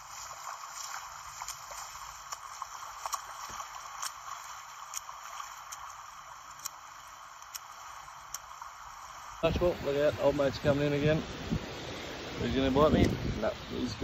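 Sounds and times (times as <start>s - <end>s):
person running through shallow water: 0.0s - 7.6s.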